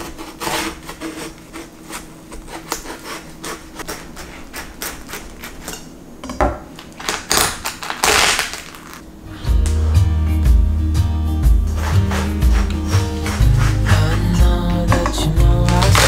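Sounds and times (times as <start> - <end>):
melon cracking and tearing: 0.0 - 5.7, 6.8 - 9.0, 15.6 - 16.0
knife cutting watermelon rind: 0.0 - 5.9, 11.7 - 16.0.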